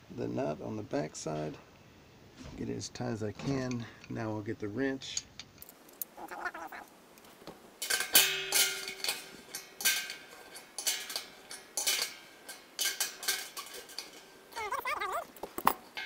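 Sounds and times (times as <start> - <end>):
wrench clanking on metal pot: 7.8 - 14.8.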